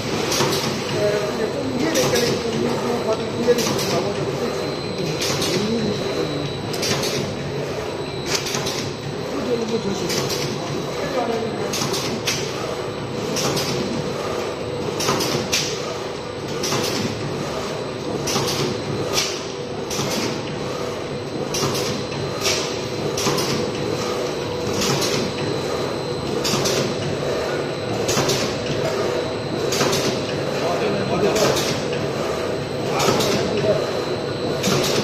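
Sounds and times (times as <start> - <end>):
machine humming: 0.0 - 35.0.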